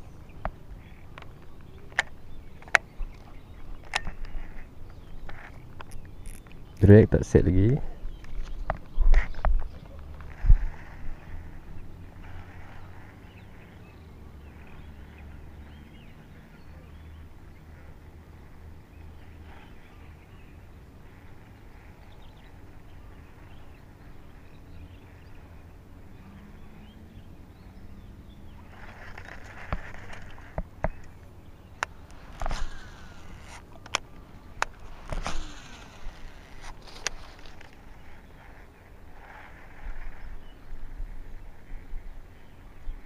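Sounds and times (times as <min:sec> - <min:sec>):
faint bird calls: 0:00.0 - 0:43.0
low outdoor hum: 0:00.0 - 0:43.0.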